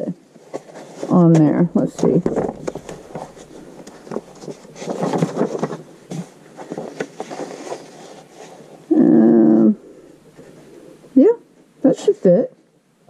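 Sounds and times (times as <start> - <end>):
paper rustling and sliding: 0.5 - 8.9.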